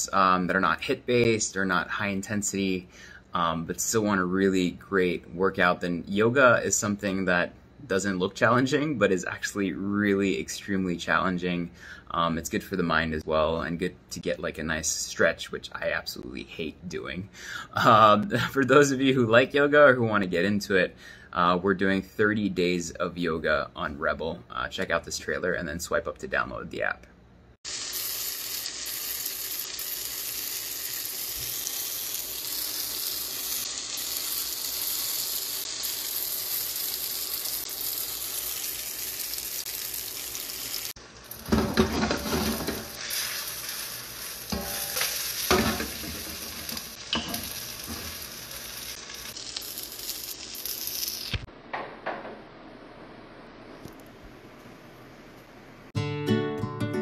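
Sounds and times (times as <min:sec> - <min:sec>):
onions sizzling in oil: 0:27.6 - 0:51.5
stirring and pan scraping: 0:41.3 - 0:48.5.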